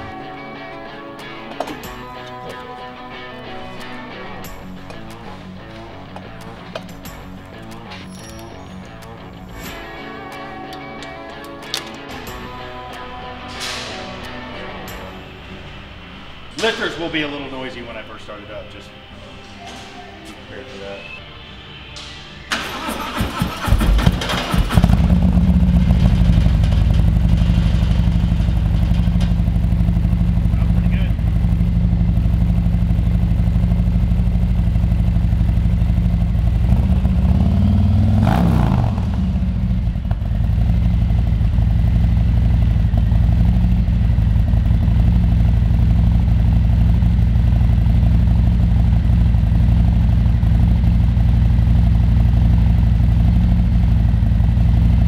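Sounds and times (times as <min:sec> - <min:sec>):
motorcycle engine idling: 0:22.7 - 0:55.0.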